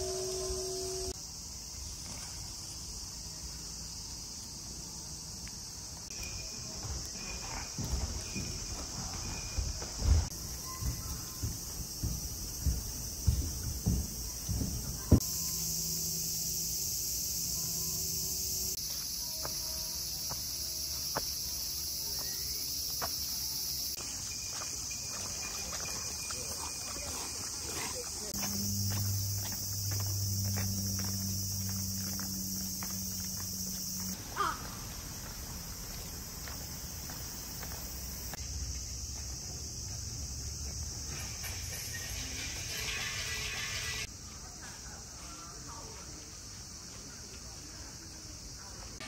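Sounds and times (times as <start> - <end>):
cicadas buzzing: 0.0 - 49.0
high-pitched insect chorus: 0.0 - 49.0
footsteps on wooden walkway: 6.4 - 15.3, 18.8 - 40.9.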